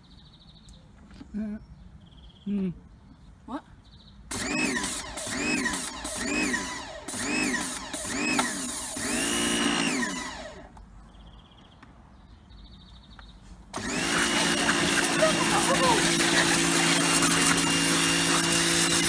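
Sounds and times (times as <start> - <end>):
electric pressure washer running: 4.3 - 10.7, 13.7 - 19.0.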